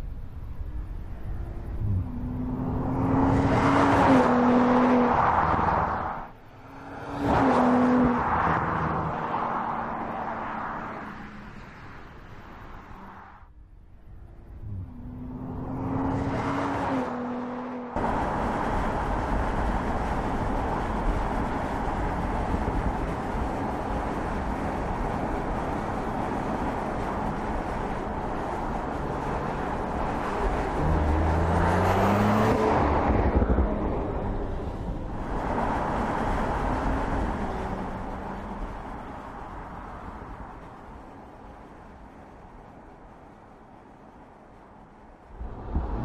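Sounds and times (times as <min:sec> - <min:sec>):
road and tyre noise: 0:00.0 - 0:46.0
car engine revving: 0:01.6 - 0:11.6, 0:14.3 - 0:40.8.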